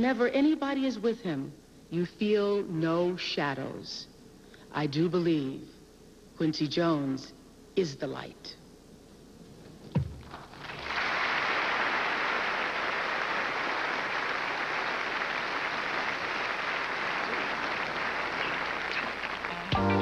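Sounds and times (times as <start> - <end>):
sharp thump: 9.9 - 10.4
audience applauding: 10.3 - 20.0.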